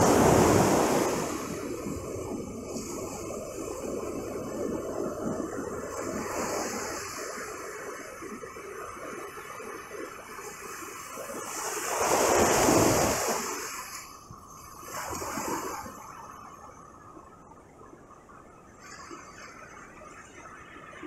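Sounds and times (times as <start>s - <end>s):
surf breaking on beach: 0.0s - 4.7s.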